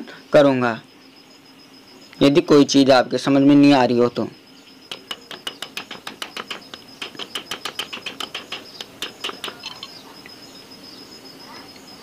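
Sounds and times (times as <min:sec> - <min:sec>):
rapid hammer taps on sheet metal: 0:04.9 - 0:09.7.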